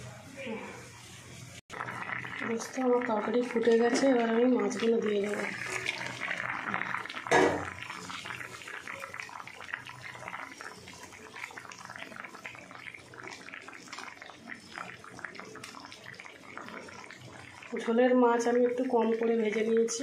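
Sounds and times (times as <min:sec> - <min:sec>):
gravy bubbling and popping: 0:01.7 - 0:20.0
fish dropped into hot pan: 0:07.3 - 0:07.7.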